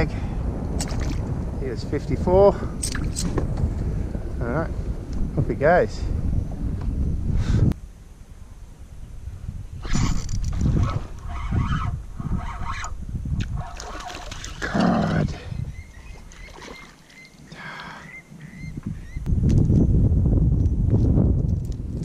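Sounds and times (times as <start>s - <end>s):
low rumbling handling noise: 0.6s - 7.8s.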